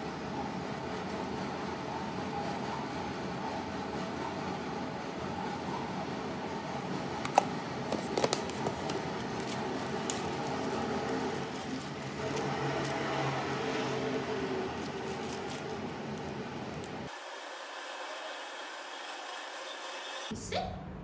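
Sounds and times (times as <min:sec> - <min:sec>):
plastic bag crinkling: 0:08.0 - 0:17.1.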